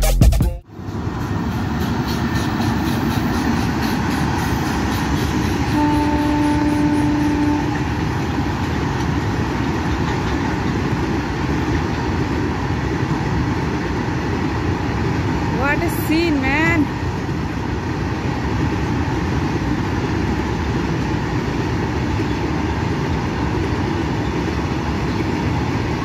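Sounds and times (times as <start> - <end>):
freight train wagons rumbling: 0.7 - 26.0
locomotive horn: 5.6 - 8.0.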